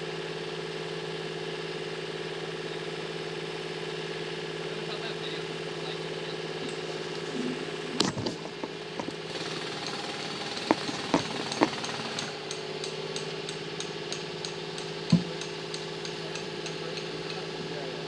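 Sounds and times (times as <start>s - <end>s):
engine idling: 0.0s - 18.0s
sharp knocks: 8.0s - 9.3s, 10.5s - 12.4s, 13.2s - 16.8s.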